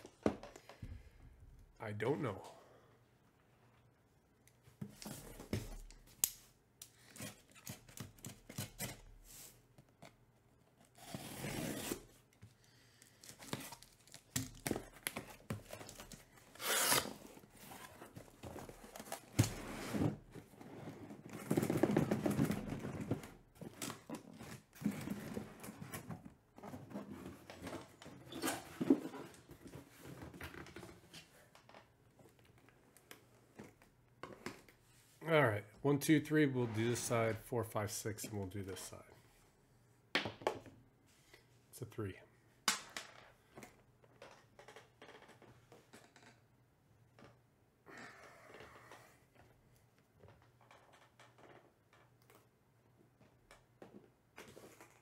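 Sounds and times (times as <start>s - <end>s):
cardboard tearing: 13.4s - 18.0s.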